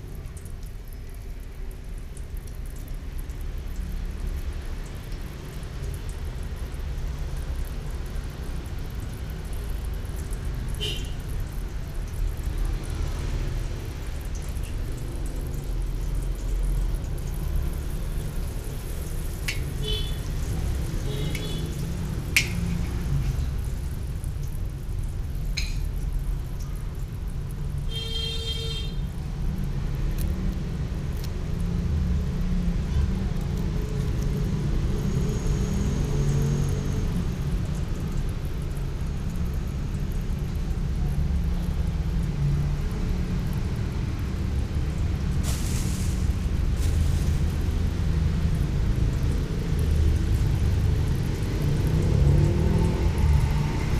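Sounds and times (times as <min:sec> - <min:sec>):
gas burner roaring: 0:45.4 - 0:48.4.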